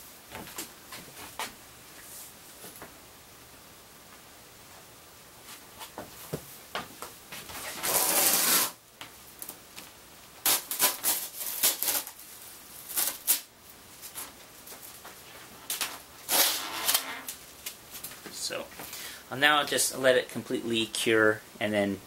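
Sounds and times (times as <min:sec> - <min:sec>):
masking tape tearing off: 0:07.6 - 0:08.8, 0:10.4 - 0:12.2, 0:12.9 - 0:13.5, 0:15.6 - 0:17.8.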